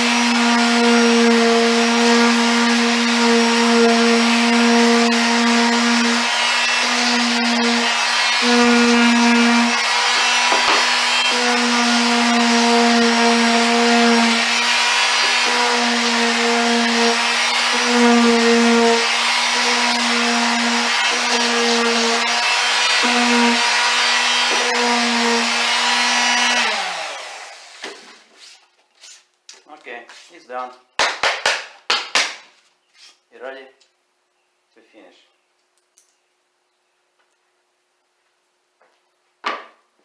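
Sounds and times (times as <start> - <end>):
electric power sander whining: 0.0 - 27.8.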